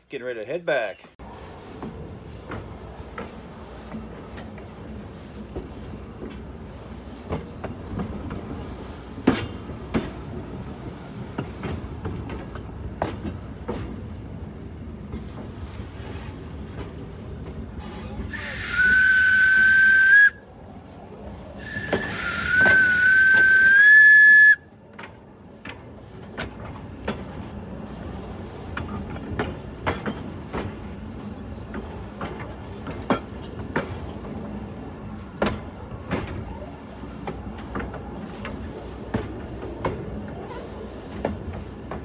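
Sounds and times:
railcar rumbling: 0:00.0 - 0:42.0
steam hiss: 0:18.3 - 0:20.4, 0:21.6 - 0:24.6
steam locomotive whistle: 0:18.3 - 0:20.4, 0:21.6 - 0:24.7.

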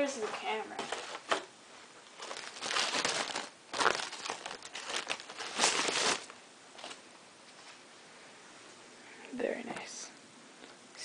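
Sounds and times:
packing wrap crinkling: 0:00.2 - 0:07.0.

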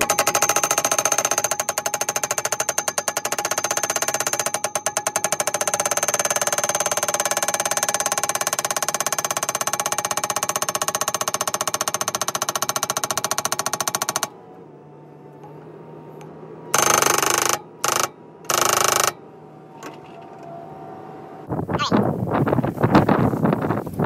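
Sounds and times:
hydraulic post driver hammering: 0:00.0 - 0:14.4, 0:16.7 - 0:19.2
skid steer idling: 0:00.0 - 0:19.3.

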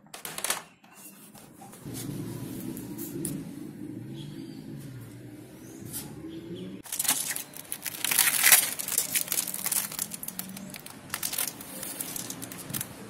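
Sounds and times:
packing tape crinkling and tearing: 0:06.8 - 0:13.0.

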